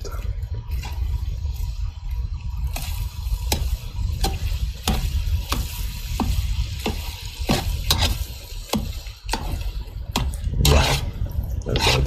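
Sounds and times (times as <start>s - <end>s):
steady low rumble: 0.0s - 12.0s
ladle scraping metal pan: 2.8s - 12.0s.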